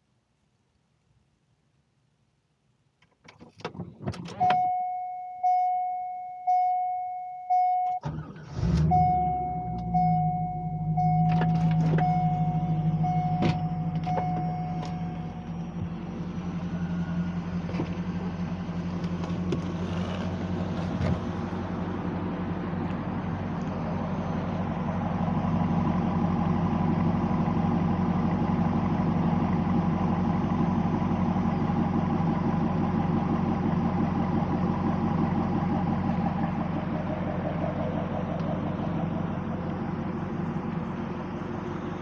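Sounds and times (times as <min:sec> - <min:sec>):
car engine starting and idling: 0:02.9 - 0:42.0
dashboard warning chime: 0:04.3 - 0:08.2, 0:08.8 - 0:16.0.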